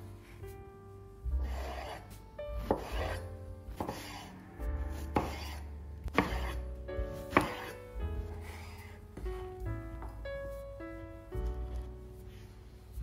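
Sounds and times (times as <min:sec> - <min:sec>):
knife slicing eggplant: 0:01.4 - 0:04.2, 0:04.9 - 0:06.6, 0:07.3 - 0:07.8.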